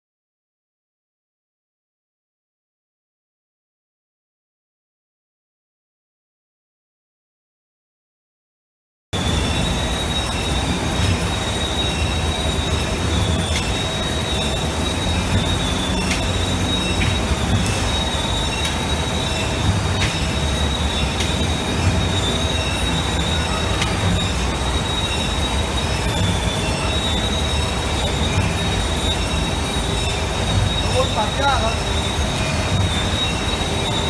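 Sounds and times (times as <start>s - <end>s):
high-pitched whine: 9.2s - 34.0s
machine low rumble: 9.2s - 34.0s.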